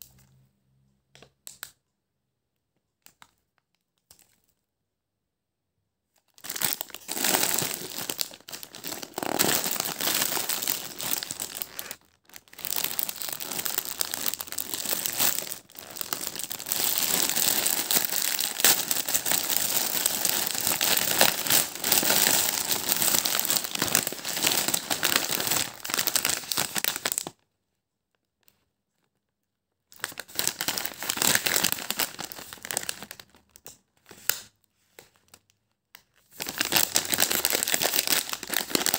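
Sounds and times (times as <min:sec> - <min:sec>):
plastic snack packets crinkling: 0:06.1 - 0:27.4, 0:29.9 - 0:38.9.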